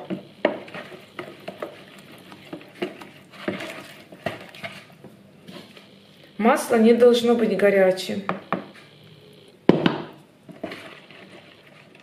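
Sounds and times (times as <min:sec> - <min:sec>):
spoon stirring liquid in a bowl: 0:00.0 - 0:05.7, 0:10.5 - 0:12.0
spoon scraping plastic bowl: 0:00.0 - 0:05.9, 0:10.4 - 0:12.0.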